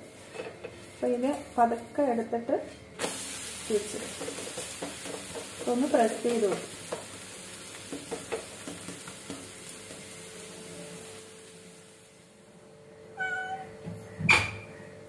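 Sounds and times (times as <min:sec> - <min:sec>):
cat meowing: 0:13.1 - 0:13.8.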